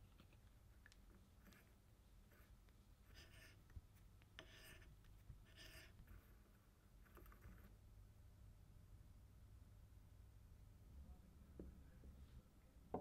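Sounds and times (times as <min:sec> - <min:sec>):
tap scraping metal: 0:03.1 - 0:04.9.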